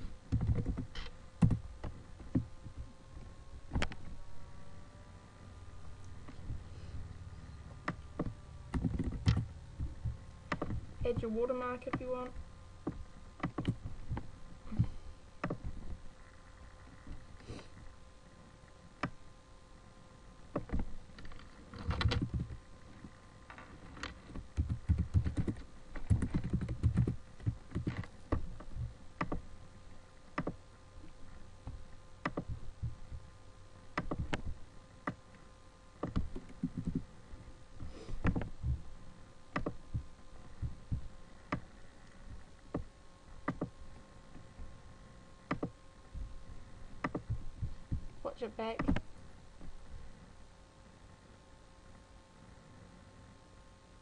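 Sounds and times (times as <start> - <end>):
typing on computer keyboard: 24.6 - 28.0.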